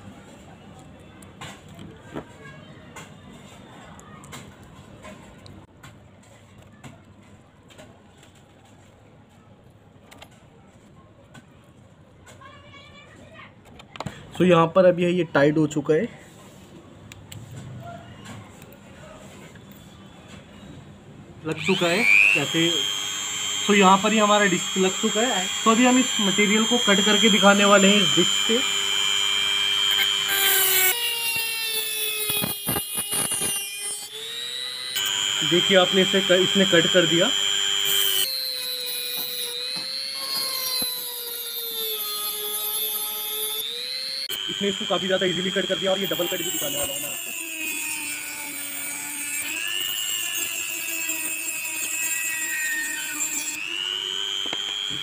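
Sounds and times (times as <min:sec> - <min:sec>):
rotary tool whine: 0:21.5 - 0:55.0.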